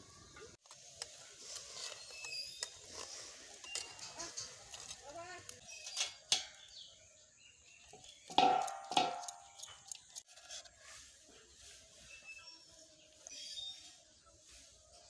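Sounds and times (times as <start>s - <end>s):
metal clanks on a steel plate: 5.9s - 6.7s, 8.3s - 9.8s.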